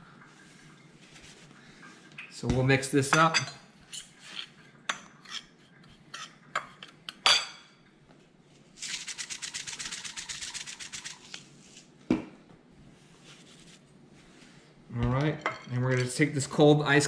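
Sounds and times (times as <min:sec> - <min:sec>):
fork scraping a ceramic plate: 0:03.9 - 0:06.4
seasoning shaker rattling: 0:08.8 - 0:11.4.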